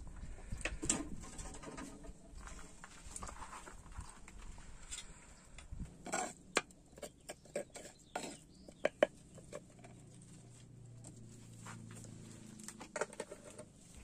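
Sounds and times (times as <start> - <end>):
metal spoon scraping in mortar: 6.0 - 10.0.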